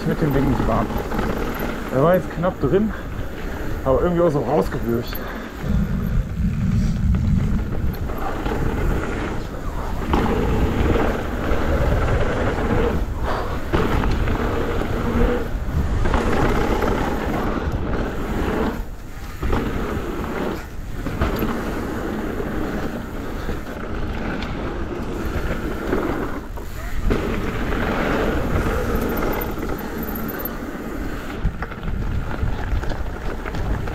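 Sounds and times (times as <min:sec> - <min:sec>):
bike tyres rolling on dirt: 0:00.0 - 0:33.9
wind on microphone: 0:00.0 - 0:33.9.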